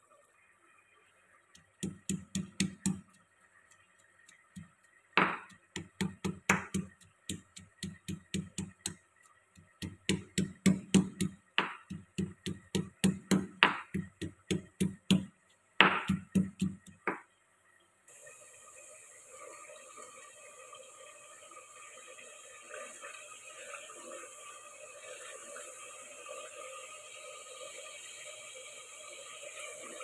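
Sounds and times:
pestle pounding in stone mortar: 1.8 - 3.0, 5.2 - 9.0, 9.8 - 17.2.

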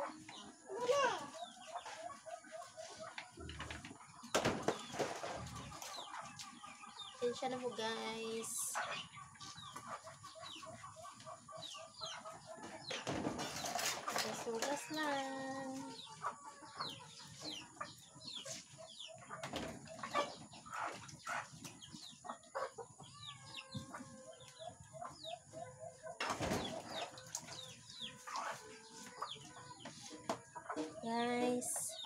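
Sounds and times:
chickens clucking: 0.0 - 32.0
dishes clattering being washed: 12.9 - 14.9.

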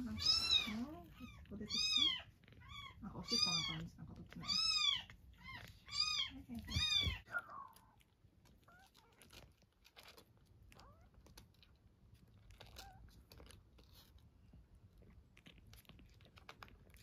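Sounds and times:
kitten squeaking: 0.0 - 11.7, 12.4 - 14.2
kitten sucking from bottle: 0.0 - 17.0.

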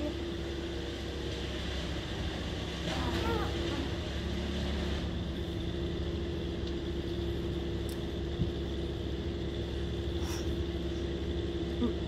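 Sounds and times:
brush chipper engine running: 0.0 - 12.0.

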